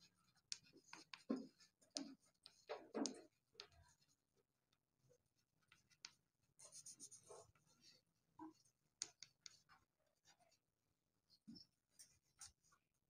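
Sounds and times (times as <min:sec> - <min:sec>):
pen scratching while writing: 0:00.0 - 0:04.0, 0:05.7 - 0:08.0.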